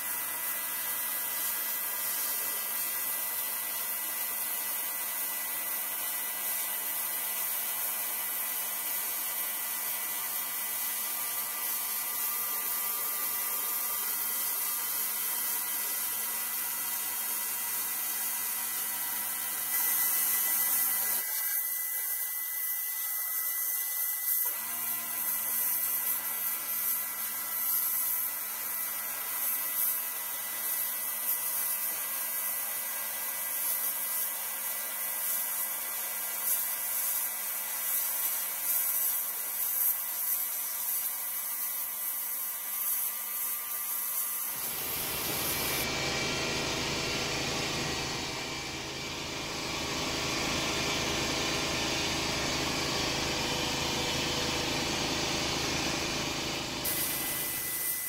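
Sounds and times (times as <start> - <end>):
blast gun hissing: 44.5 - 45.9.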